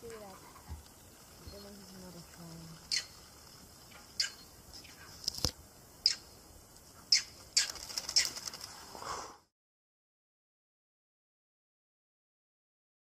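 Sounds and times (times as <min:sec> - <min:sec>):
high-pitched animal calls: 0:02.9 - 0:03.2, 0:04.2 - 0:05.0.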